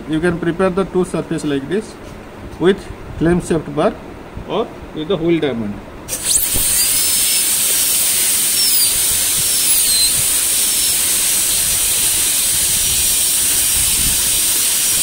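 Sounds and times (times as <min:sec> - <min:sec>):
dental drill hissing and whining: 0:06.1 - 0:15.0.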